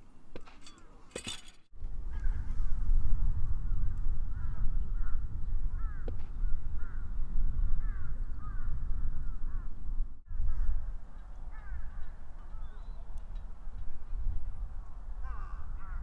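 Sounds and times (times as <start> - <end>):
birds calling: 7.8 - 16.0.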